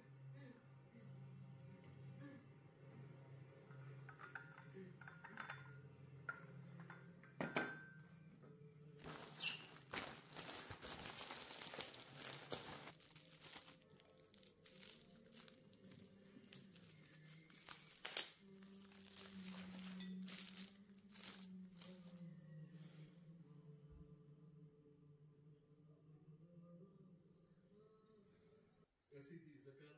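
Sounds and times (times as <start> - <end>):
packaging rustling and crinkling: 9.0 - 22.2.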